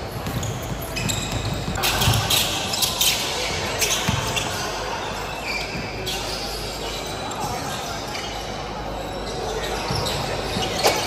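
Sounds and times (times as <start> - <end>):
basketball bouncing on court: 0.0 - 2.7, 3.5 - 4.5
shoes on court: 0.0 - 4.6
players' voices: 0.0 - 11.0.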